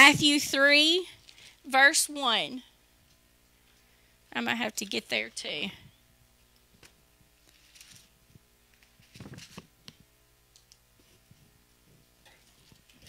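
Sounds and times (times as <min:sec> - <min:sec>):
low electrical hum: 0:00.0 - 0:13.0
paper pages rustling: 0:06.8 - 0:08.1, 0:08.7 - 0:09.8.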